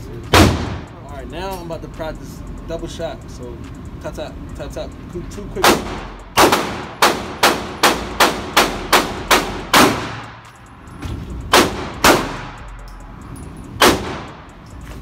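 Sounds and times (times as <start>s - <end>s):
gunshots echoing indoors: 0.3s - 0.9s, 5.6s - 10.4s, 11.5s - 12.7s, 13.8s - 14.4s.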